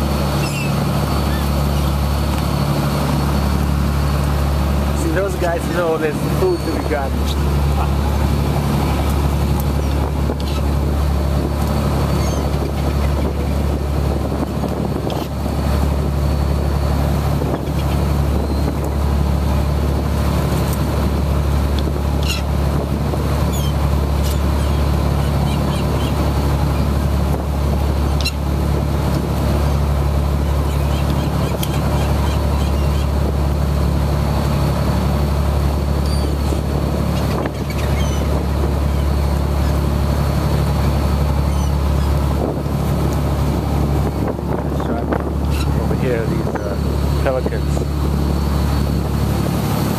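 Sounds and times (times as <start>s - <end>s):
boat engine droning: 0.0s - 49.9s
rushing water: 0.0s - 49.9s
wind: 0.0s - 49.9s
faint high squeaks: 0.4s - 1.9s.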